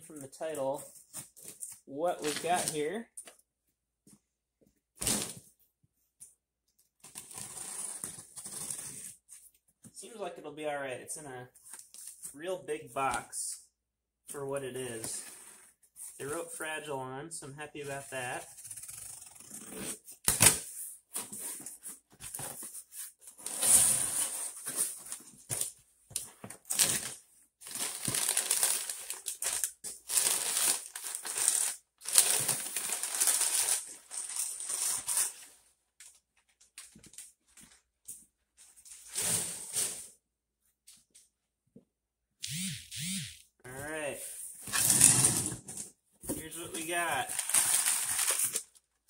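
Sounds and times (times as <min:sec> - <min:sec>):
packing paper rustling: 0:26.6 - 0:35.4, 0:46.4 - 0:48.8.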